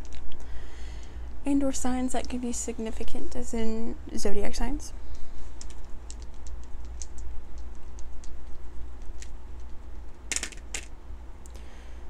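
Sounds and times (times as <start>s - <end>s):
wooden dice rattling in hand: 5.6s - 10.9s
dice clattering onto table: 10.3s - 10.9s.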